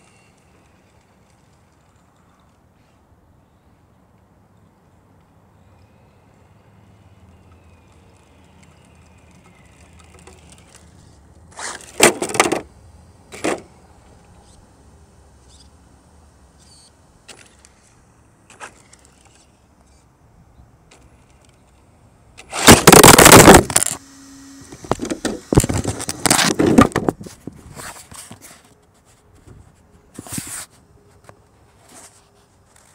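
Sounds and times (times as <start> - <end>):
toy car motor and tyre noise: 0.0 - 2.6, 7.1 - 12.6, 13.3 - 14.8, 15.4 - 15.8, 16.5 - 20.1, 22.4 - 27.2
car crashing into camera: 22.5 - 24.0
camera handling knocks and rustles: 24.8 - 27.3.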